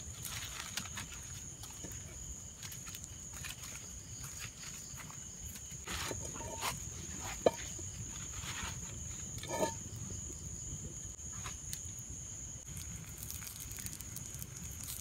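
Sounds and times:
crickets trilling: 0:00.0 - 0:15.0
wood fire burning: 0:05.7 - 0:15.0
fire popping: 0:08.8 - 0:15.0.

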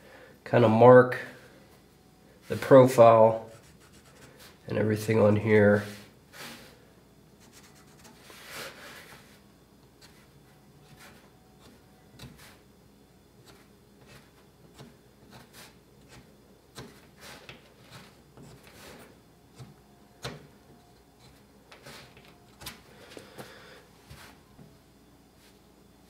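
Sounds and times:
pencil scratching on wood: 0:03.5 - 0:04.4, 0:07.4 - 0:08.3.

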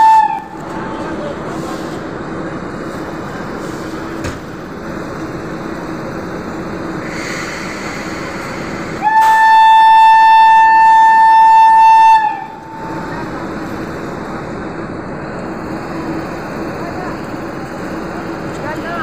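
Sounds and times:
locomotive horn blast: 0:00.0 - 0:00.6, 0:09.0 - 0:13.0.

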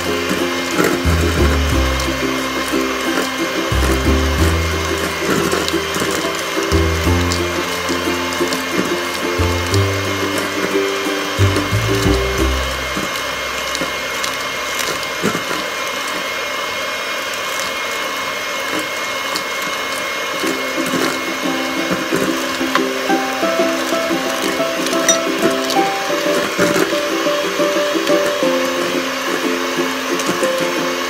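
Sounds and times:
electric hand mixer whining: 0:00.0 - 0:31.0
background music: 0:21.0 - 0:30.0.

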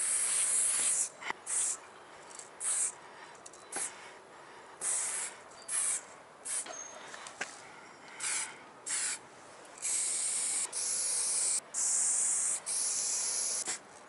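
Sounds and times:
spray can hissing bursts: 0:00.0 - 0:01.8, 0:02.6 - 0:03.0, 0:04.8 - 0:06.7, 0:08.2 - 0:09.2, 0:09.8 - 0:13.8.

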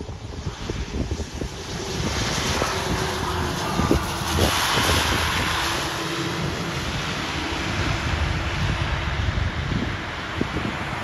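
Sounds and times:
propeller plane engines: 0:00.0 - 0:11.0
wind buffeting microphone: 0:00.0 - 0:11.0.

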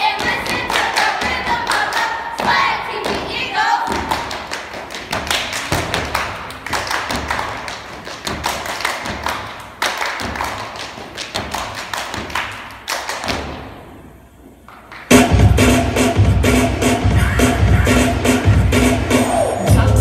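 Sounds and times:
stomps on a stage: 0:03.9 - 0:09.5
hand claps: 0:04.0 - 0:13.5
loud recorded music: 0:15.1 - 0:20.0.

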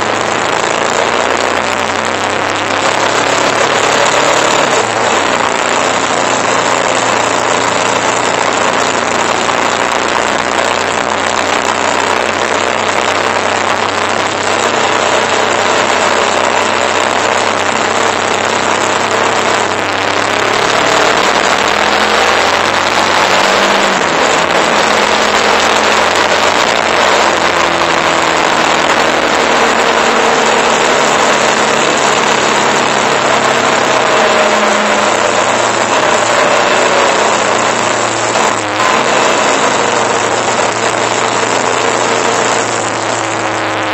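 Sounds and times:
motorcycle engine running: 0:00.0 - 0:43.9.

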